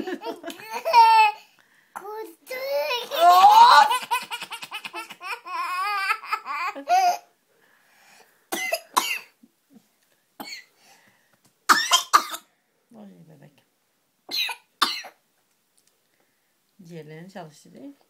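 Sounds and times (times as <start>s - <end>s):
toddler laughing: 0.0s - 1.4s, 2.6s - 7.2s.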